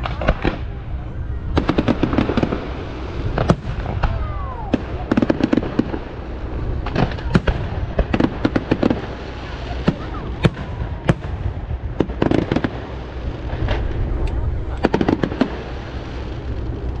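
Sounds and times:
fireworks bursting with bangs: 0.0 - 17.0.

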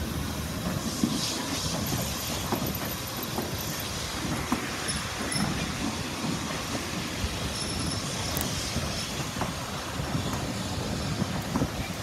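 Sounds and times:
train wheels rumbling on rails: 0.0 - 12.0.

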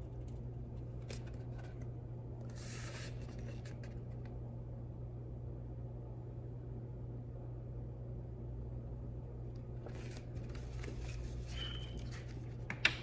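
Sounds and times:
low room hum: 0.0 - 13.0
book pages turning: 0.2 - 4.4, 9.8 - 12.9.

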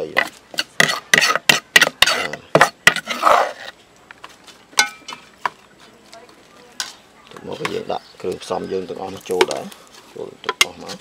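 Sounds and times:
metal spoon scraping a pot: 0.1 - 3.8.

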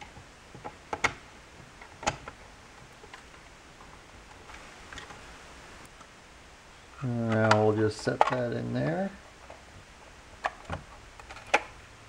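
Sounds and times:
plastic parts clicking: 0.0 - 5.2, 7.2 - 8.6, 10.4 - 11.8.

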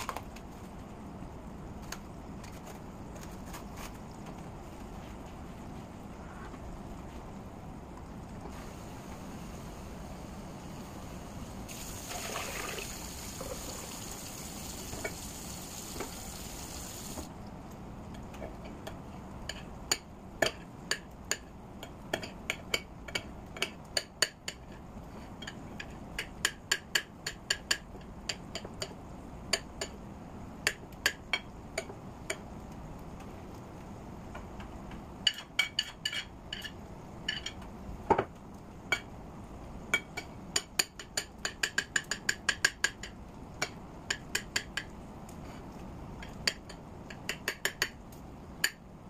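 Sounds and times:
kitchen tap running: 11.7 - 17.3.

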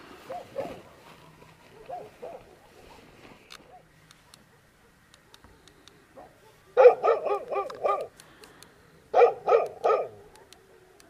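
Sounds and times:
dog barking loudly: 0.3 - 0.8, 1.7 - 2.9, 6.2 - 8.1, 9.1 - 10.8.

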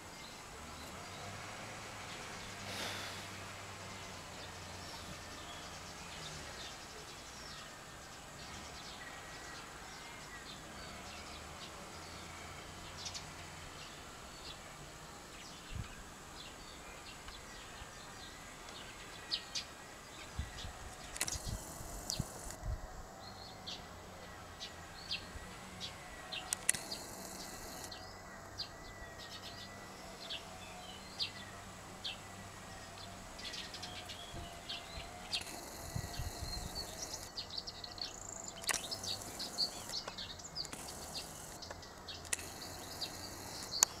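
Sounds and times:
small birds chirping: 15.2 - 44.0.

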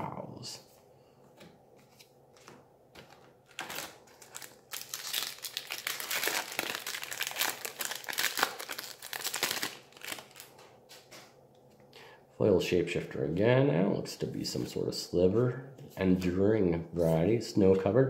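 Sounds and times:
foil wrapper tearing and crinkling: 3.5 - 10.5.

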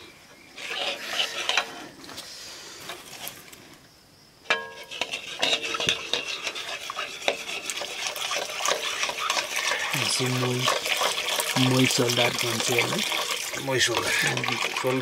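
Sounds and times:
metal spoon scraping metal pan: 0.6 - 1.9, 4.5 - 14.8
milk hissing in hot pan: 4.8 - 15.0.

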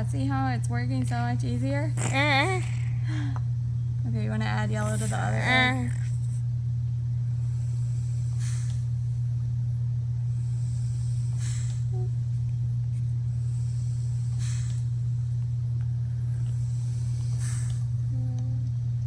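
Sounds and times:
machine low hum: 0.0 - 19.0.

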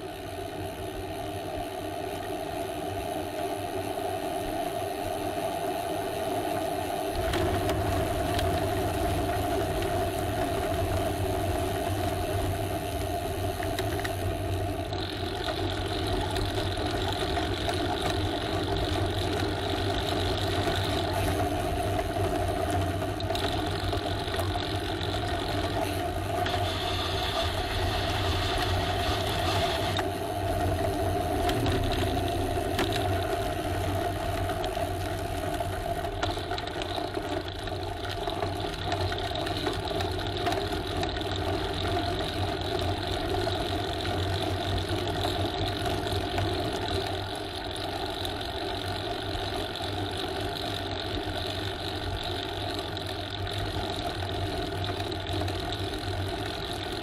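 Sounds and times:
steady motor hum: 0.0 - 57.0
low rumble: 25.1 - 34.8.

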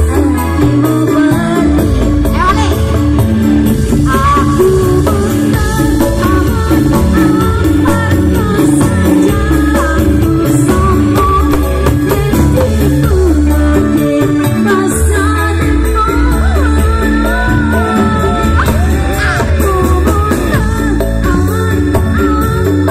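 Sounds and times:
keyboard band music: 0.0 - 22.9
woman singing: 0.0 - 22.9.

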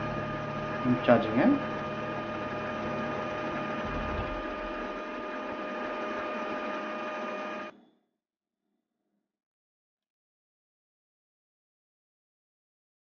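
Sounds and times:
printer mechanical whir and whine: 0.0 - 7.7.

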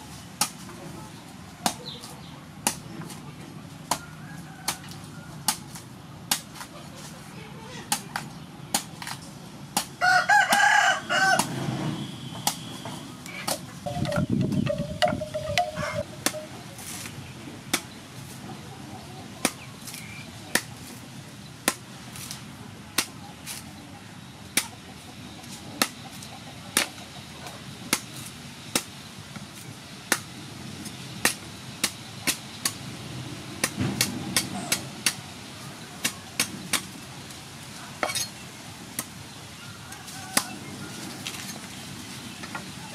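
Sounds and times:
cleaver chopping coconut: 2.6 - 3.2, 5.5 - 6.7, 19.4 - 20.8, 21.6 - 21.9
rooster crowing: 4.0 - 5.4, 10.0 - 11.5, 15.1 - 16.5, 39.6 - 41.0
chicken calling: 13.3 - 16.8.

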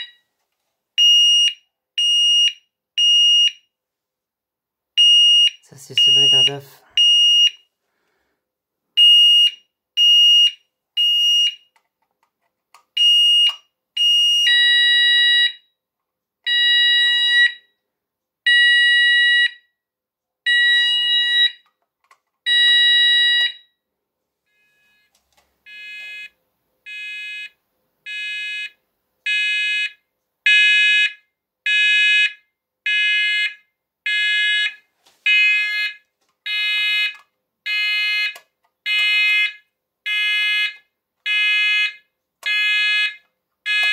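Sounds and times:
fire alarm beeping: 5.0 - 7.6, 20.5 - 21.6, 22.5 - 23.8, 37.7 - 43.9.

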